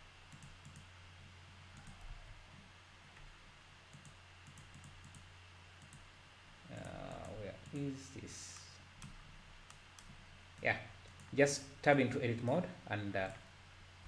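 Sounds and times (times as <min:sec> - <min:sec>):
low steady hum: 0:00.0 - 0:14.0
faint computer mouse clicks: 0:00.3 - 0:00.9, 0:01.8 - 0:02.1, 0:03.9 - 0:06.1.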